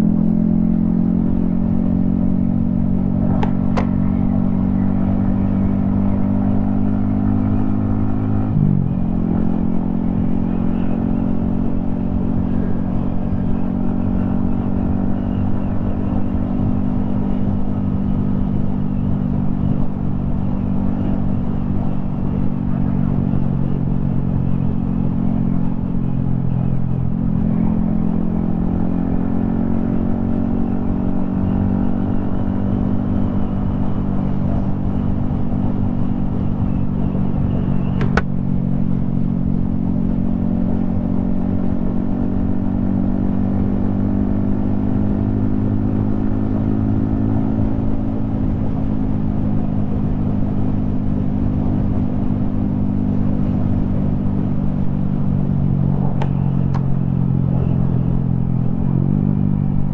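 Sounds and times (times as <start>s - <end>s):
motorcycle engine cruising: 0.0s - 59.9s
sharp click: 3.4s - 4.0s, 38.0s - 38.3s.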